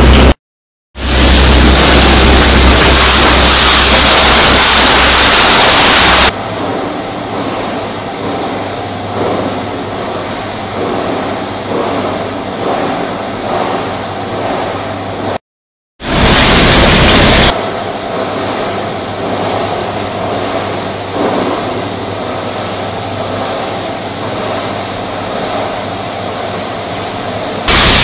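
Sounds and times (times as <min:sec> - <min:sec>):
loud low machinery rumble: 0:00.0 - 0:00.4, 0:01.0 - 0:15.4, 0:16.1 - 0:28.0
shredding mill running: 0:01.0 - 0:15.3, 0:16.0 - 0:28.0.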